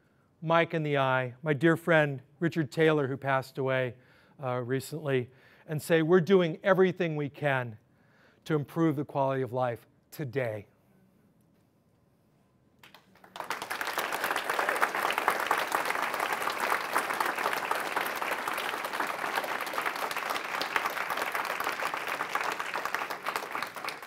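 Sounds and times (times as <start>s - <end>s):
audience applauding: 12.8s - 24.0s.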